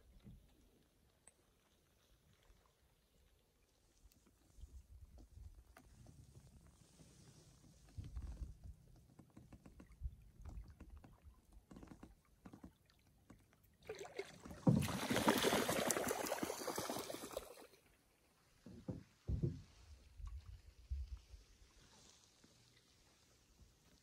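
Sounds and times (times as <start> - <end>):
paddle knocks and drips: 7.8 - 17.4, 18.6 - 21.3
water splashing at paddle: 9.6 - 18.0.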